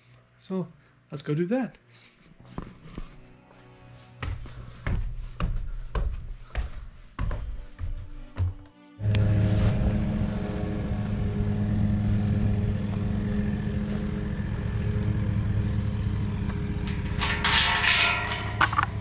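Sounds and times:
steady low drone: 0:09.0 - 0:19.0
metal gate clanking and rattling: 0:16.5 - 0:19.0.

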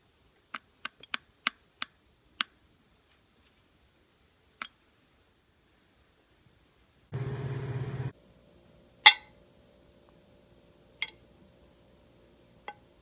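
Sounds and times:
low buzzing hum: 0:07.1 - 0:08.7
ceramic mug clinking on plate: 0:09.1 - 0:09.3.

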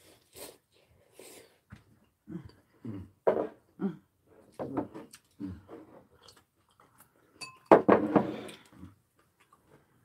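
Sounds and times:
soft chewing: 0:05.1 - 0:07.4, 0:08.5 - 0:10.0
tableware clinking: 0:07.4 - 0:08.1.

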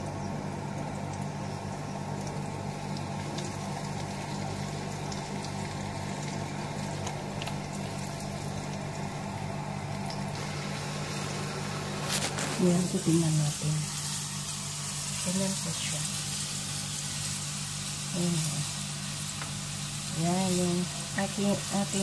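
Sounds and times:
oil sizzling in a frying pan: 0:00.0 - 0:22.0
steady low hum: 0:00.0 - 0:22.0.

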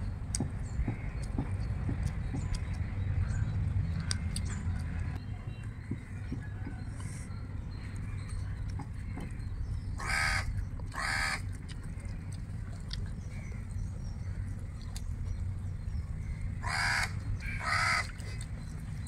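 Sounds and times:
low background rumble: 0:00.0 - 0:19.0
crow cawing: 0:10.0 - 0:11.4, 0:16.6 - 0:18.2.

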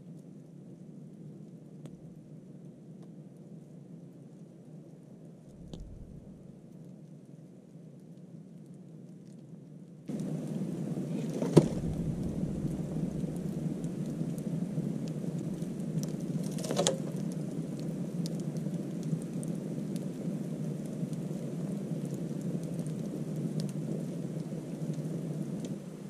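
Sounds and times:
fire crackling and popping: 0:00.8 - 0:26.0
fire flame rushing: 0:05.5 - 0:06.5, 0:10.1 - 0:26.0.

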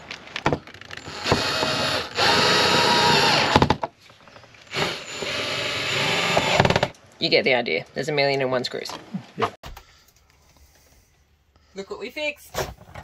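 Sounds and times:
cordless drill driving screws: 0:01.0 - 0:03.7, 0:04.7 - 0:06.9.

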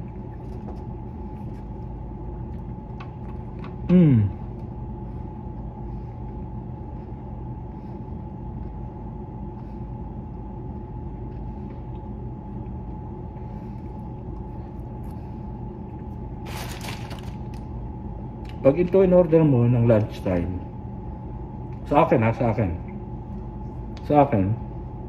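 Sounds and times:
soft chewing: 0:00.0 - 0:16.4
air conditioning hum: 0:00.0 - 0:25.0
mid-pitched whine: 0:00.0 - 0:25.0.

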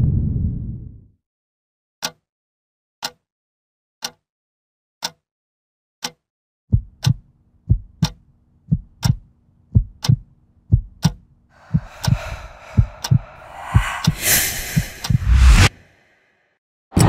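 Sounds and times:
rising noise swell: 0:11.6 - 0:15.8.

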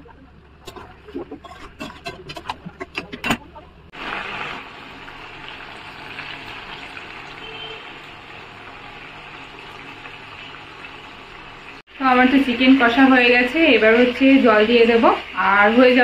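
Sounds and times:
metal spatula scraping a pan: 0:00.7 - 0:03.6
curry sizzling in a pan: 0:03.9 - 0:16.0.

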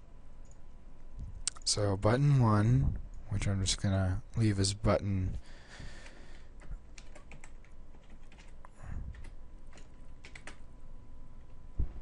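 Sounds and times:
computer keyboard typing: 0:06.0 - 0:10.7.

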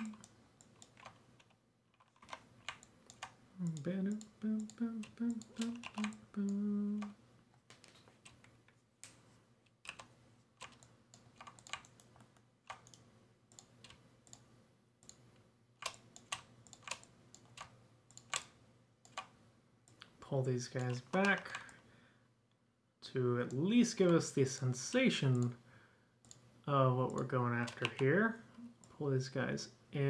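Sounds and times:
keyboard keys clicking: 0:00.0 - 0:06.2, 0:09.8 - 0:14.4
wordless vocal hum: 0:03.5 - 0:07.2.

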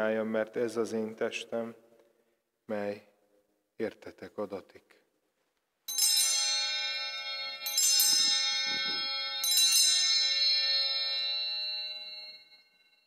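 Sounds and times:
altar bells ringing: 0:05.9 - 0:13.0.

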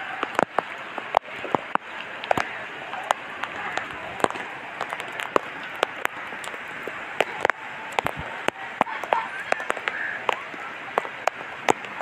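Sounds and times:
rain falling: 0:00.0 - 0:12.0
raindrops tapping hard surface: 0:00.0 - 0:12.0.

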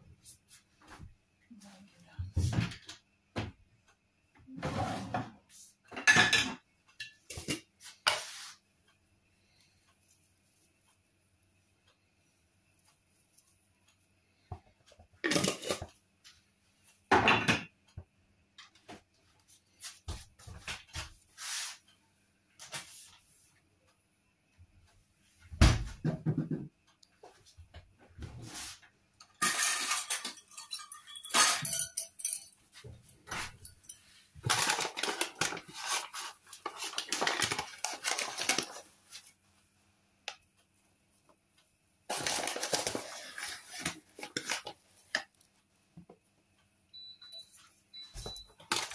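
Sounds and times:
utensils clattering in drawer: 0:15.3 - 0:15.9, 0:29.3 - 0:32.6, 0:33.2 - 0:38.7, 0:48.6 - 0:48.9
knocks and clinks: 0:29.4 - 0:32.6.

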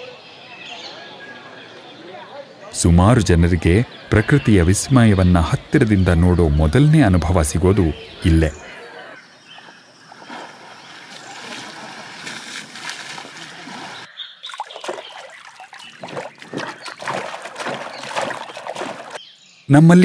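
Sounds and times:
pelicans splashing: 0:03.4 - 0:19.2
elephants splashing water: 0:09.6 - 0:19.2
wings flapping in water: 0:10.1 - 0:19.2.

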